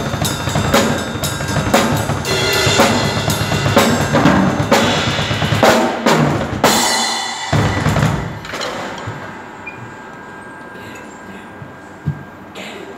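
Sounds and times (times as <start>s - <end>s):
drum kit played hard: 0.0s - 9.5s.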